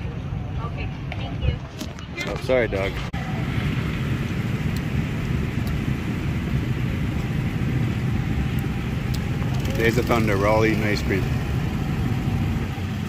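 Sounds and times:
go-kart engines droning: 2.8s - 13.0s.

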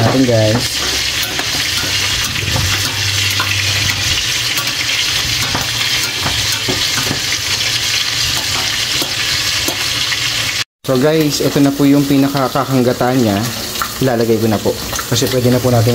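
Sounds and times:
metal spoon scraping a pot: 0.0s - 10.5s
pot simmering with sizzling hiss: 0.0s - 15.9s.

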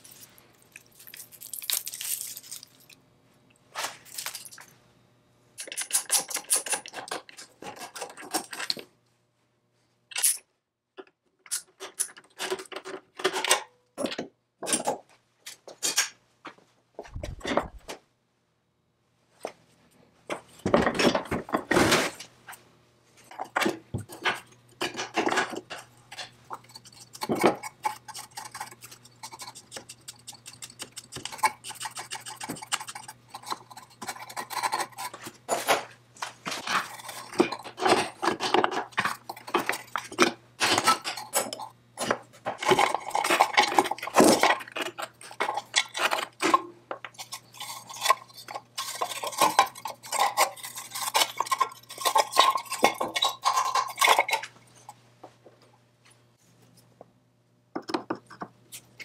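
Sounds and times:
wrench and metal parts clinking: 10.1s - 10.5s.

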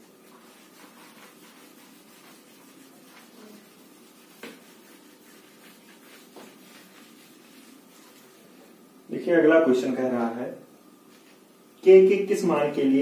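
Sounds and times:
duster rubbing whiteboard: 0.0s - 8.4s.

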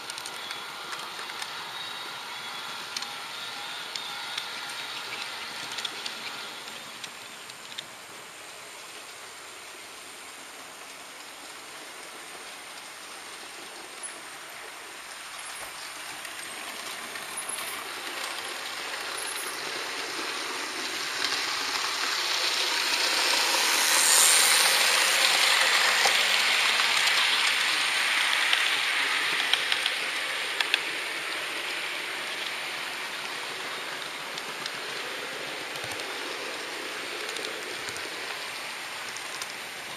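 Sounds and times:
model train wheels rolling: 0.0s - 39.9s
small clicks: 3.9s - 7.9s.

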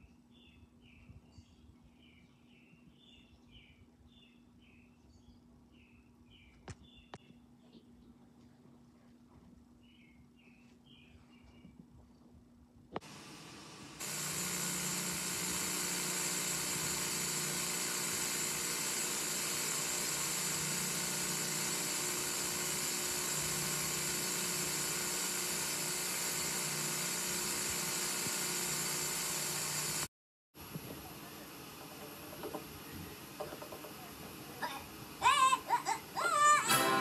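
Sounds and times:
tape playback hiss: 30.6s - 37.0s.

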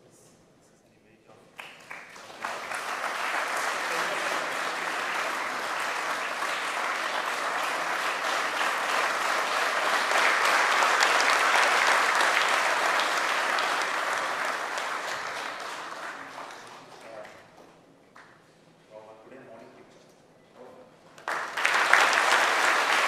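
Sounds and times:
audience applauding: 1.6s - 17.6s, 21.2s - 23.0s.

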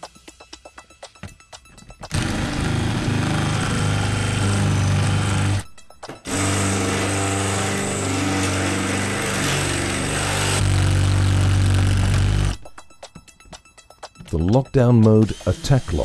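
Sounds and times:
drill bit grinding into lock: 2.1s - 5.6s, 6.2s - 12.6s.

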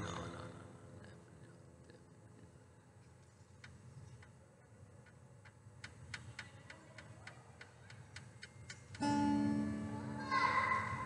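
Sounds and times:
resonator guitar chord: 9.0s - 10.5s.

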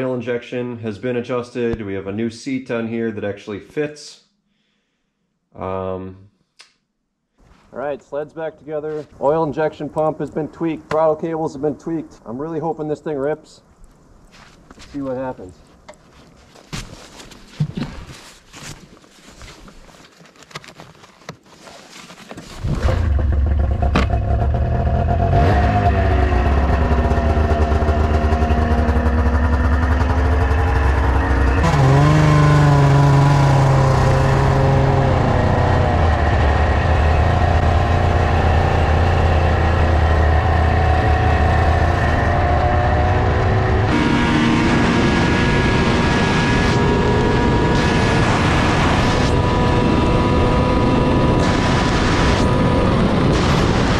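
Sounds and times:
snowmobile engine revving: 22.6s - 53.9s.

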